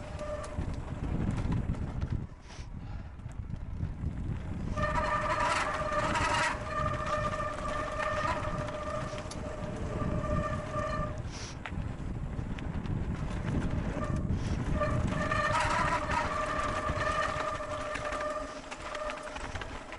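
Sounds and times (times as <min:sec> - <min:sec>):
wind on microphone: 0:00.0 - 0:19.7
tyres rumbling on gravel: 0:00.0 - 0:19.9
bike disc brakes squealing: 0:04.7 - 0:11.6, 0:14.0 - 0:19.7.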